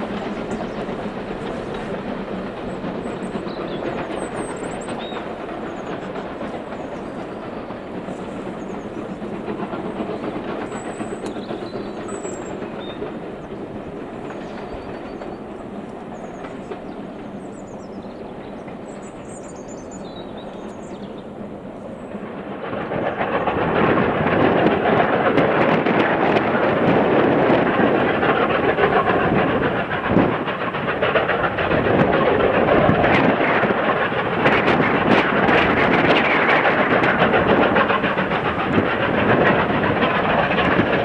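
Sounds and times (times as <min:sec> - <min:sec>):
birds chirping: 0:00.0 - 0:22.3
steam train working hard: 0:00.0 - 0:41.0.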